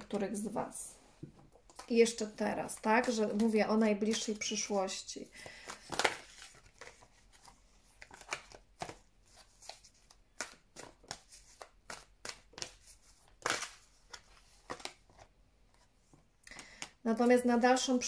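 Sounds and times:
cards being shuffled: 1.6 - 15.9.

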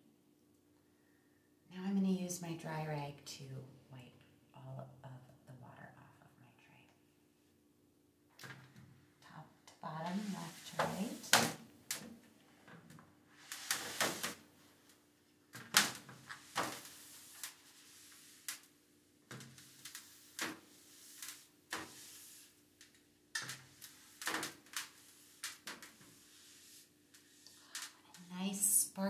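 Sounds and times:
cloth rag wiping a tray: 10.0 - 11.3, 16.2 - 18.5, 19.6 - 22.6, 24.9 - 27.5.

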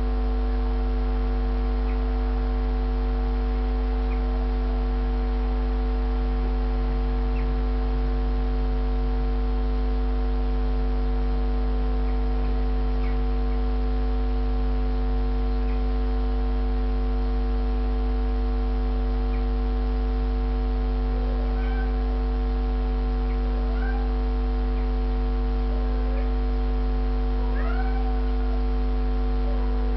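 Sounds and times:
low hum with held tones: 0.0 - 29.9
short rising cries: 27.5 - 28.8.

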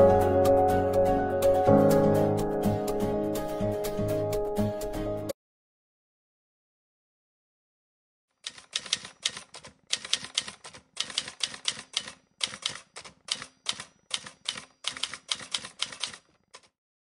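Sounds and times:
typewriter keys clacking: 8.4 - 16.8.

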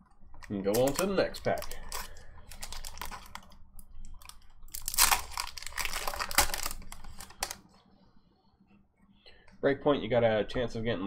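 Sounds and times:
foil wrapper crinkling and tearing: 0.4 - 7.6.

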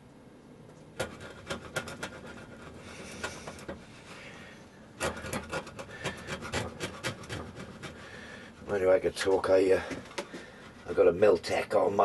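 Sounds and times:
screwdriver scraping paint off metal: 5.0 - 8.0.

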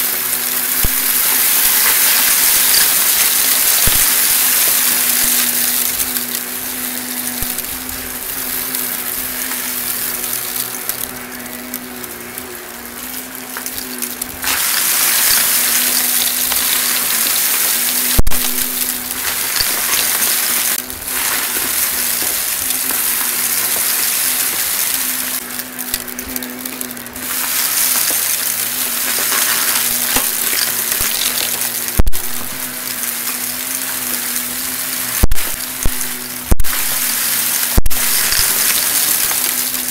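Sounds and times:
debris sucked up hissing: 0.0 - 39.9
vacuum cleaner motor hum: 0.0 - 39.9.

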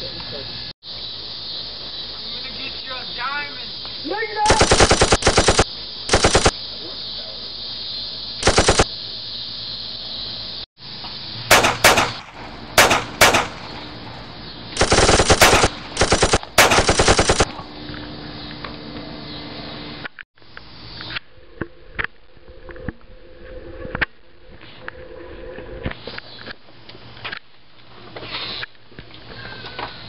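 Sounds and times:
machine-gun fire sound effect: 4.5 - 6.5, 8.4 - 8.9, 11.5 - 14.0, 14.8 - 17.5.

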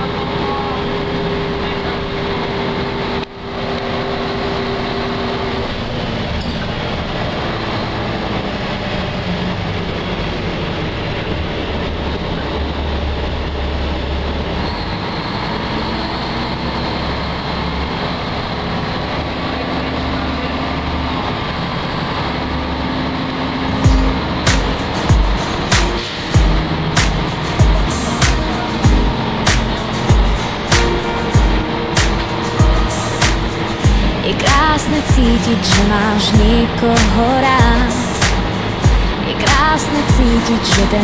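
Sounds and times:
bus drivetrain and tyres rumbling: 0.0 - 41.0
humming tones changing pitch: 23.4 - 41.0.

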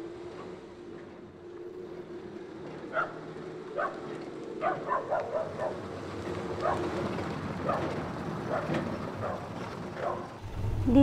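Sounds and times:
car engine approaching: 1.5 - 11.0
dogs barking: 2.9 - 5.9, 6.5 - 7.0, 7.6 - 10.4.

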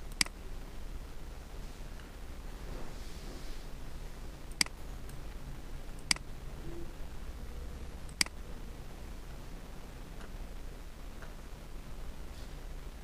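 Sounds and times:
low steady hum: 0.0 - 13.0
computer mouse clicks: 0.1 - 0.4, 4.5 - 4.8, 8.1 - 8.4.

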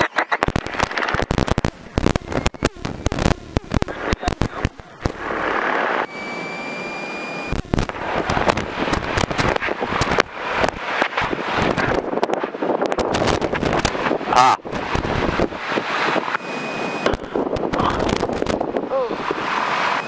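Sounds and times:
steady hiss with thin whistle: 5.2 - 7.6, 16.2 - 17.1.

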